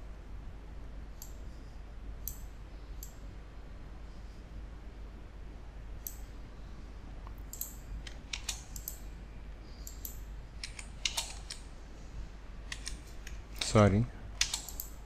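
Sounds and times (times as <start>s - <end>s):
faint low hum: 0.0s - 15.0s
mouse and keyboard clicks: 9.9s - 11.6s.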